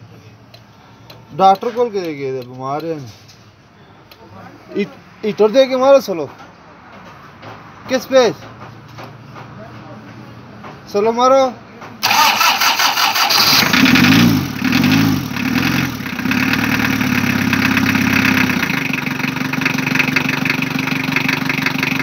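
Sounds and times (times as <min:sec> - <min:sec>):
diesel engine starting and revving: 0:12.0 - 0:22.0.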